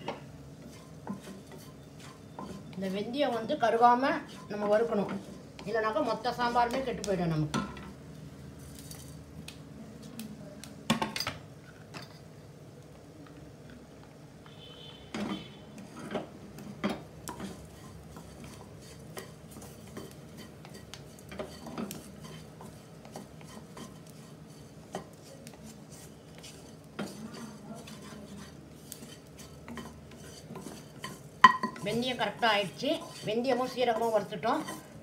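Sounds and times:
spatula scraping seeds in pan: 0.0s - 8.0s, 15.2s - 35.0s
spatula knocking against pan: 29.6s - 32.1s.

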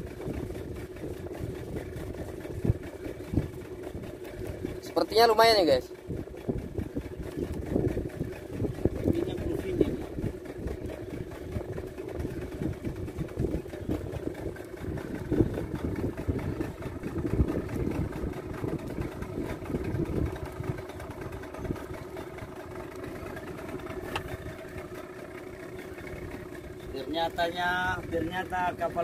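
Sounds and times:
boat engine idling: 0.0s - 29.0s
uneven low rumble: 6.0s - 27.1s.

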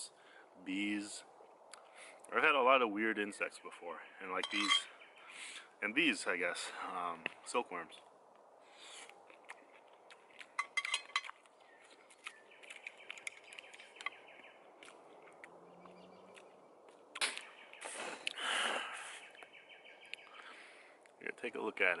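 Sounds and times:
bird chirping: 0.2s - 22.0s
campfire crackling and popping: 7.2s - 19.5s.

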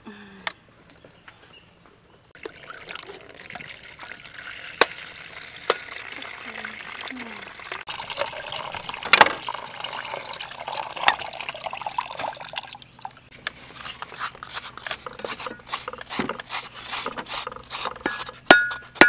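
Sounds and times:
water pouring into plastic pot: 2.4s - 13.3s
scraper scraping coconut: 13.6s - 19.0s.

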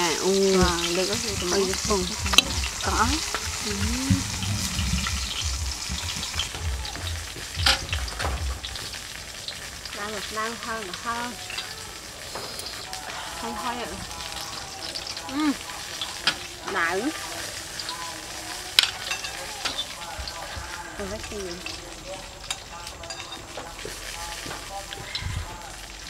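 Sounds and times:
voiced murmurs: 0.0s - 8.7s, 10.0s - 26.0s
utensils clicking on a plate: 18.6s - 20.4s.

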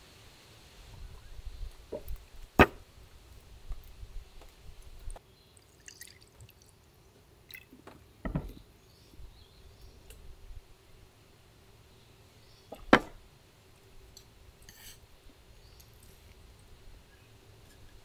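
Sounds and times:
liquid pouring and trickling: 5.6s - 6.8s.

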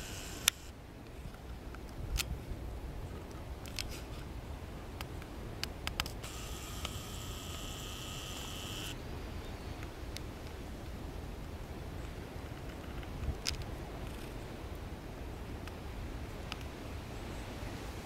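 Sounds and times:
camcorder zoom motor whirring: 0.0s - 0.7s, 6.2s - 9.0s.

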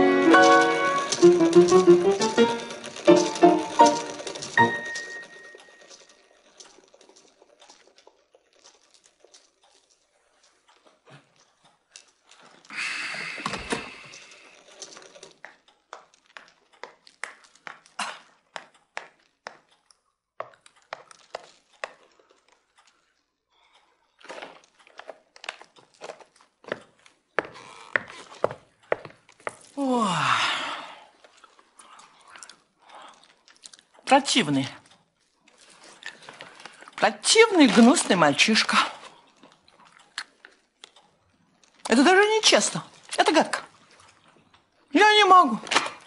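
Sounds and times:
rustling: 0.0s - 19.3s.

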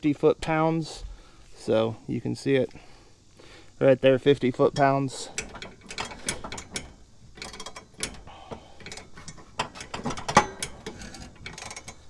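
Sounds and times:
socket wrench ratchet clicking: 4.8s - 12.0s.

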